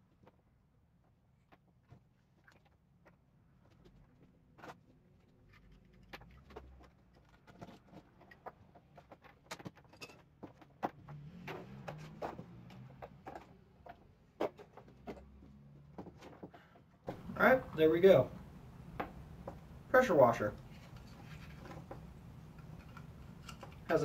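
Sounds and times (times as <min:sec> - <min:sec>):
handling small plastic parts: 0:02.4 - 0:15.4, 0:20.6 - 0:23.9.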